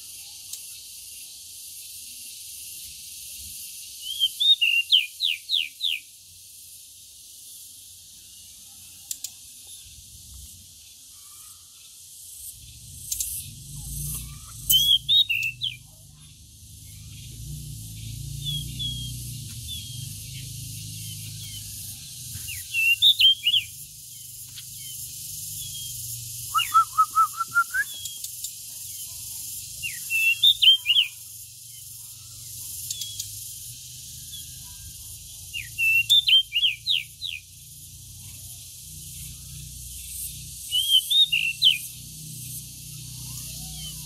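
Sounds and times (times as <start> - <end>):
bird singing whistled phrases: 4.0 - 6.1, 14.1 - 15.8, 18.4 - 20.2, 22.5 - 23.7, 25.6 - 28.3, 29.8 - 31.2, 35.6 - 37.4, 40.7 - 41.9.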